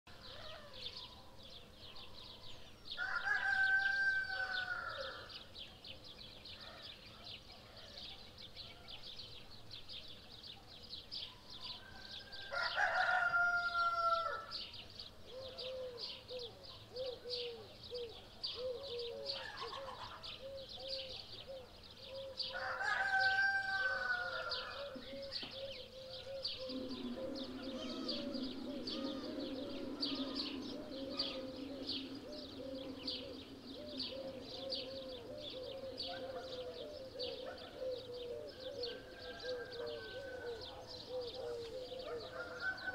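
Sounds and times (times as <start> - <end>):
small birds chirping: 0.1 - 42.9
rooster crowing: 3.0 - 5.3, 11.8 - 14.6, 22.5 - 25.0, 26.6 - 35.3, 38.9 - 40.9, 42.0 - 42.9
low steady hum: 26.3 - 36.0.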